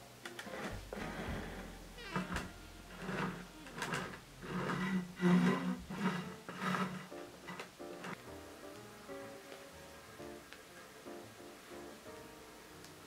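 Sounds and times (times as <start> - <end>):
spatula scraping cream: 2.9 - 8.2.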